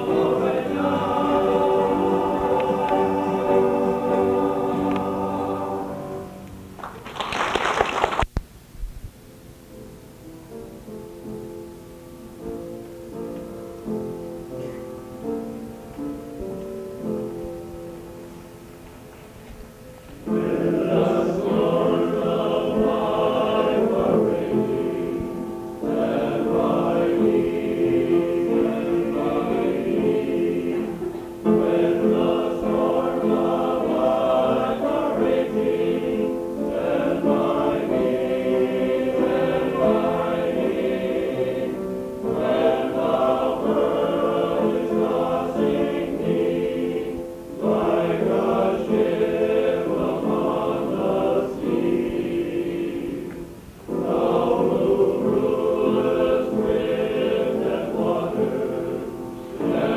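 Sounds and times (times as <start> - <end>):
men's chorus singing in harmony: 0.0 - 6.4, 20.2 - 59.9.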